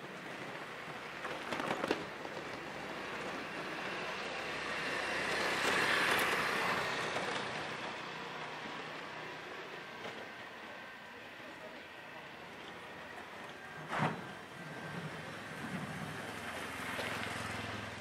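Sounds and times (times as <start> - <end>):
road vehicle passing: 2.2 - 10.0, 14.3 - 18.0.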